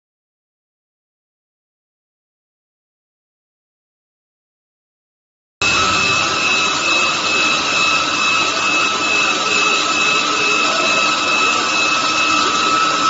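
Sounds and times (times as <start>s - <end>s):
stone saw grinding with high whine: 5.6s - 13.0s.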